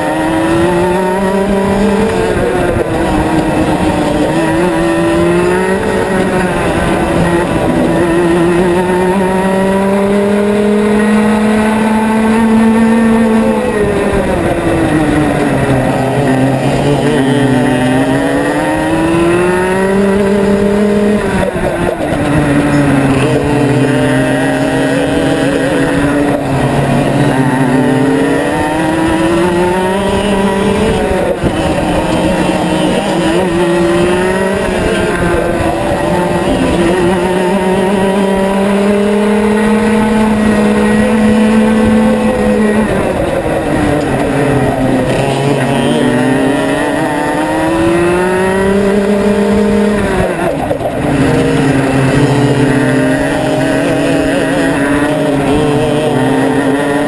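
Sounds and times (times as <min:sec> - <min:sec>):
kart engine running hard: 0:00.0 - 0:57.0.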